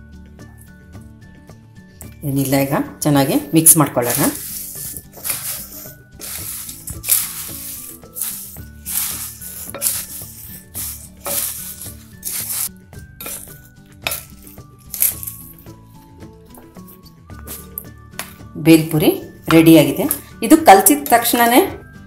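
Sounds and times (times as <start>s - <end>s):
puffed rice rustling in glass bowl: 4.0s - 15.7s.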